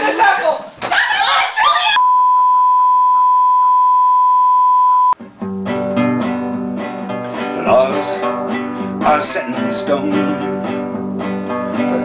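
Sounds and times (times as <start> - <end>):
test tone: 2.0 - 5.2
strummed acoustic guitar: 5.2 - 12.0.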